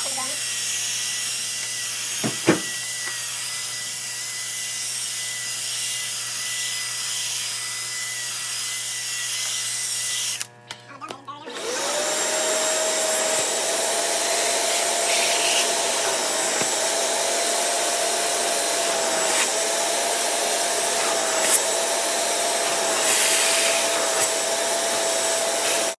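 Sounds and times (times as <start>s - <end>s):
vacuum motor suction with whine: 11.5s - 26.0s.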